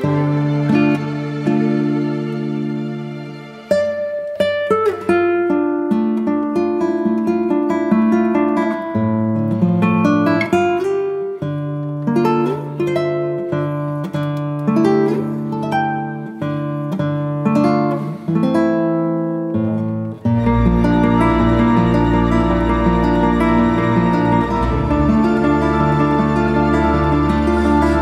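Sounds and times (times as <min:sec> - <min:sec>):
plucked acoustic guitar: 0:00.0 - 0:28.0
held bass notes: 0:20.4 - 0:28.0.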